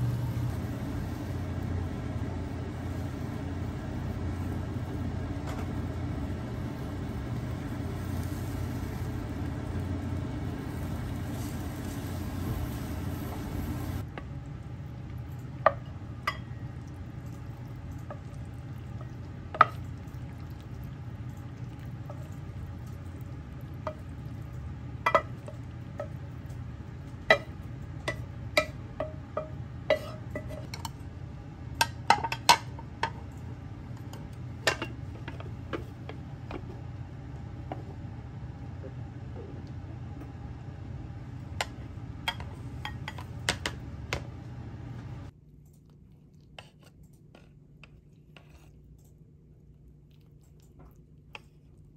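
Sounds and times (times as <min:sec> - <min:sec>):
egg frying sizzle: 0:00.0 - 0:30.4.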